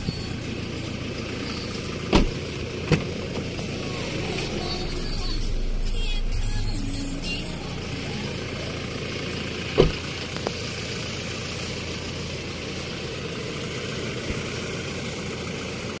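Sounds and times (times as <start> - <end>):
pickup engine idling: 0.0 - 16.0
sharp thump: 2.1 - 3.1, 9.8 - 10.0.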